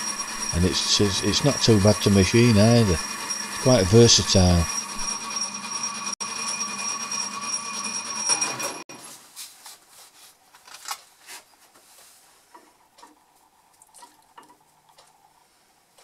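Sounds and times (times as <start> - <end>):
metal lathe whining: 0.0 - 8.8.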